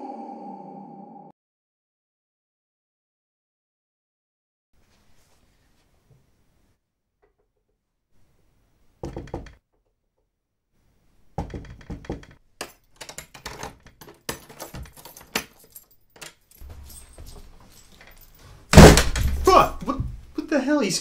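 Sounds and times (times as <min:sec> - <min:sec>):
keys jangling in a lock: 0:12.1 - 0:19.4.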